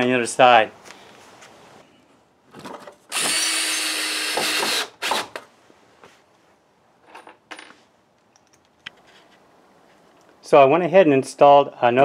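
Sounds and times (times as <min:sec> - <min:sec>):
cordless drill driving a screw: 0:03.1 - 0:05.4.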